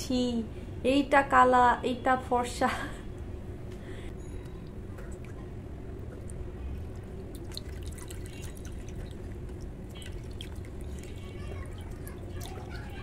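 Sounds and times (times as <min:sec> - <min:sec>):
water dripping into bowl: 0:06.1 - 0:13.0.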